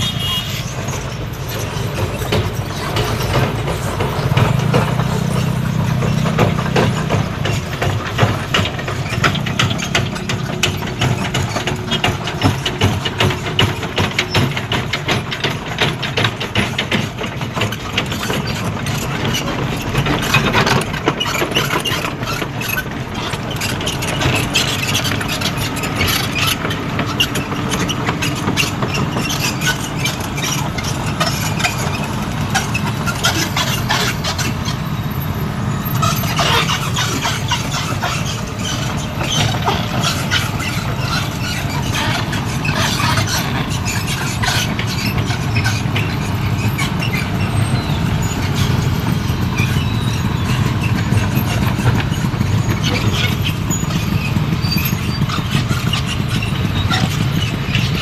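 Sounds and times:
dense rapid clatter: 0.0 - 58.0
excavator diesel engine idling: 0.0 - 58.0.

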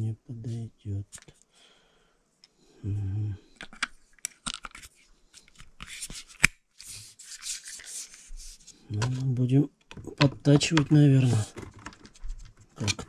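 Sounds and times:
hands rubbing and scraping parts: 3.6 - 13.0.

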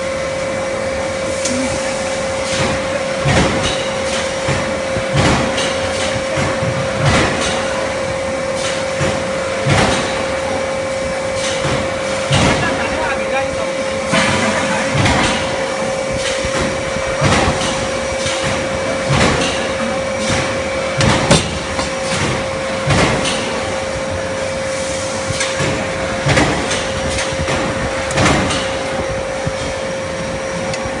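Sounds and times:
brazing machine whine: 0.0 - 5.2.

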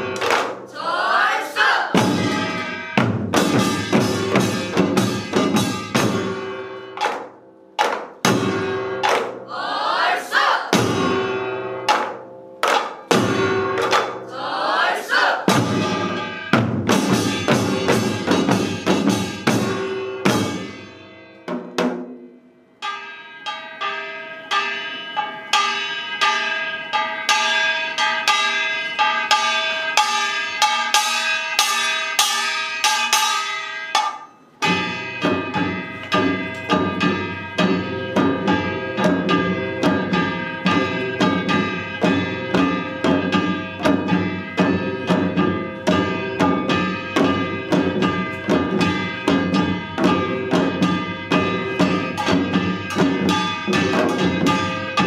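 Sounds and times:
small gongs ringing: 1.9 - 9.6, 15.5 - 55.0
drums fast driving beat: 15.5 - 20.6.

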